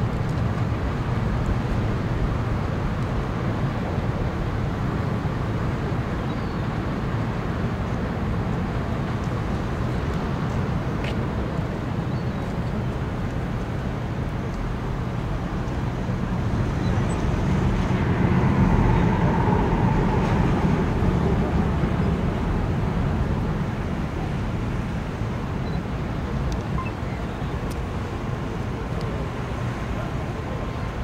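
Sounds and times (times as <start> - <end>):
distant engines rumbling: 14.3 - 31.0.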